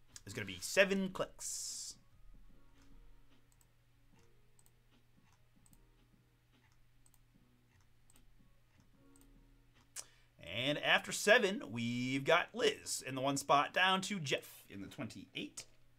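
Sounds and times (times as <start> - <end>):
computer mouse clicks: 2.8 - 10.1.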